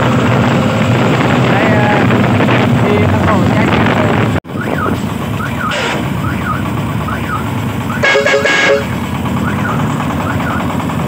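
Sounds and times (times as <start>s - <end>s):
diesel engine running: 0.0s - 11.0s
vehicle horn: 7.9s - 9.0s.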